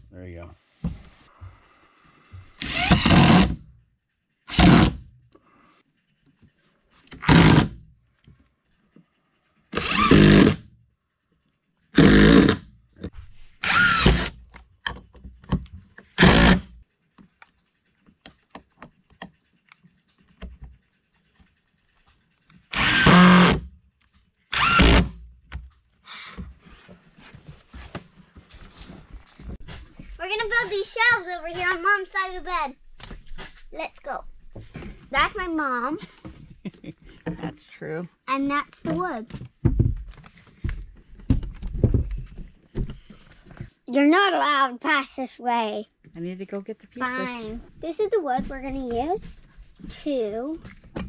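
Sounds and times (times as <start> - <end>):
cordless drill driving screws: 2.6 - 3.6, 4.5 - 5.0, 7.2 - 7.8, 9.7 - 10.6, 12.0 - 12.6, 13.6 - 14.4, 16.2 - 16.7, 22.7 - 23.6, 24.5 - 25.1.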